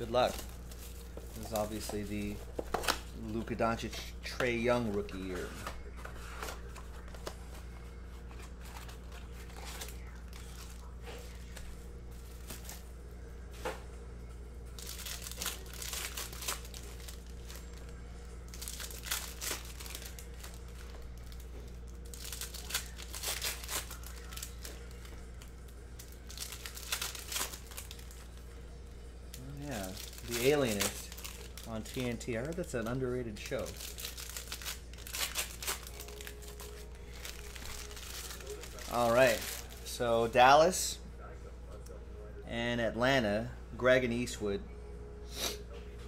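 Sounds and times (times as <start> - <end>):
foil wrappers tearing and crinkling: 0.0 - 3.3, 8.2 - 12.8, 14.8 - 28.4, 29.3 - 40.0
steady low hum: 0.0 - 46.0.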